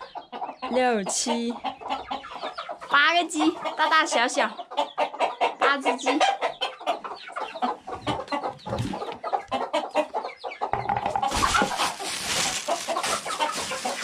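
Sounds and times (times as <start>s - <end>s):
chickens clucking: 0.0s - 14.0s
plastic bag rustling: 10.8s - 14.0s.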